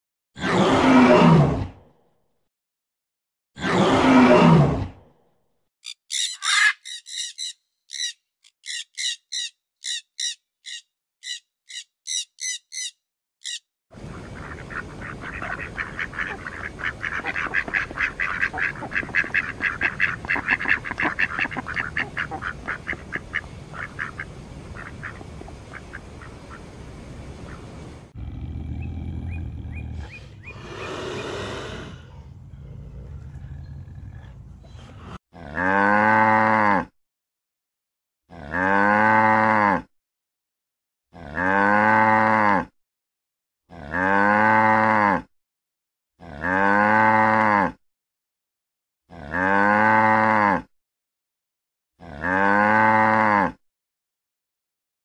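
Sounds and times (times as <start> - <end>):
gorilla call: 5.8 - 10.0
ducks quacking and chattering: 6.1 - 11.4, 14.0 - 27.9
leopard growl: 28.2 - 35.7.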